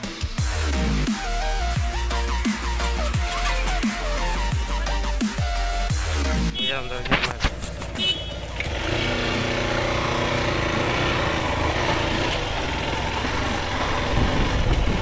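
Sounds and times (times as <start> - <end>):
motorcycle engine running: 0.3 - 15.0
wind and road noise: 6.6 - 15.0.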